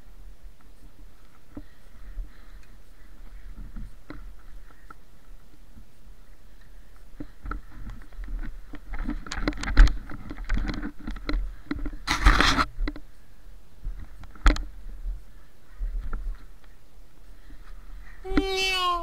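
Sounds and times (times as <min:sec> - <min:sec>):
scrape: 0:12.1 - 0:12.7.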